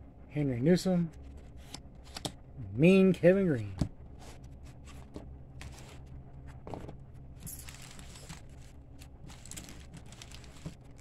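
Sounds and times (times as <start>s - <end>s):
steady low hum: 0.0s - 11.0s
cards rustling and tapping: 6.7s - 11.0s
pack wrapper crinkle: 7.5s - 11.0s.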